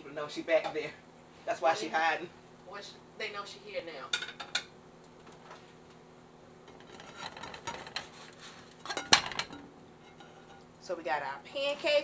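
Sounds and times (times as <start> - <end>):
spatula scraping skillet: 6.6 - 10.7.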